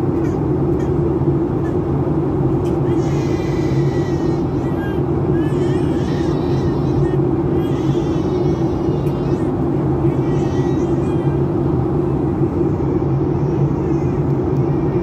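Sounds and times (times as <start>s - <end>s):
jet engines droning: 0.0s - 15.0s.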